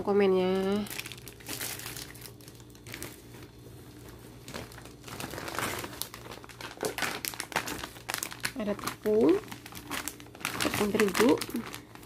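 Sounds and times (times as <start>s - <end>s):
plastic bags crinkling: 0.5s - 12.0s.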